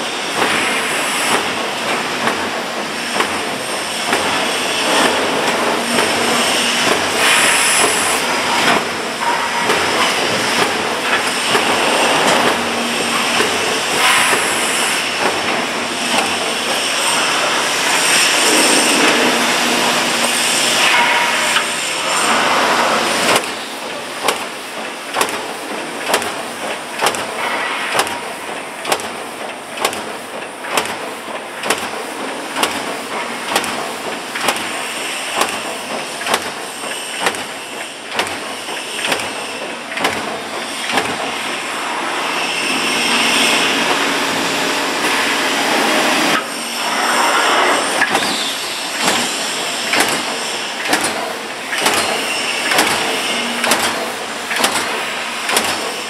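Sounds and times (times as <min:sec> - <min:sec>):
machine hissing rush: 0:02.8 - 0:24.2, 0:40.6 - 0:56.0
sharp mechanical clicks: 0:25.1 - 0:26.4, 0:28.8 - 0:31.0, 0:49.9 - 0:55.9.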